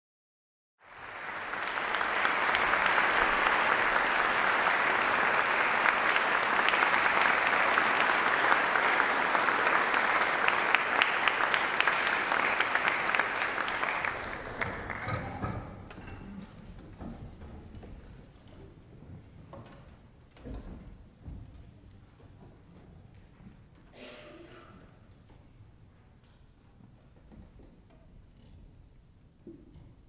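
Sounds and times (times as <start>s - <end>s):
audience applauding: 0.8s - 15.6s.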